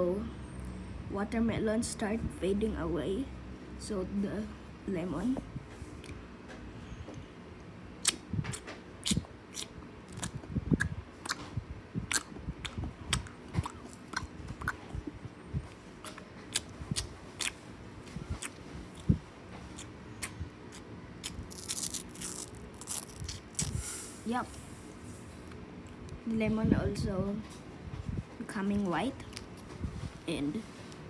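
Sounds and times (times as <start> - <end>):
candy crunching in mouth: 19.7 - 23.8, 29.2 - 29.7.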